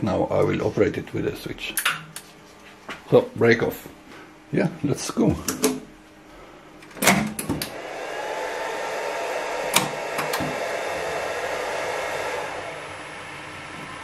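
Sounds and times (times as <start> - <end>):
panel switch clicks: 9.7 - 10.6.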